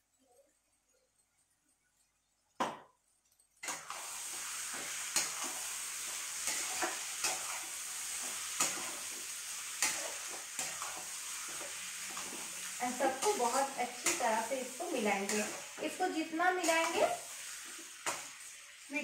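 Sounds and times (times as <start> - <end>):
spatula scraping and tapping pan: 3.6 - 18.6
food sizzling in a pan: 3.6 - 19.0.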